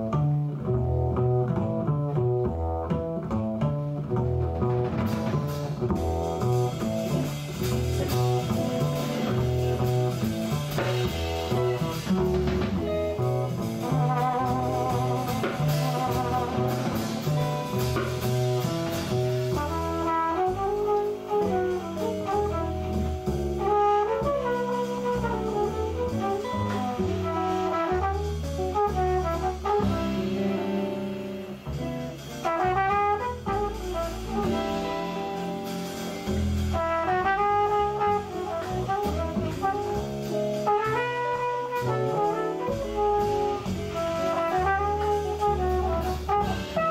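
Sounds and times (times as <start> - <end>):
drum kit: 0.0 - 46.9
upright bass: 0.0 - 46.9
trumpet solo: 13.6 - 18.2, 19.5 - 30.9, 32.4 - 35.5, 36.7 - 46.9.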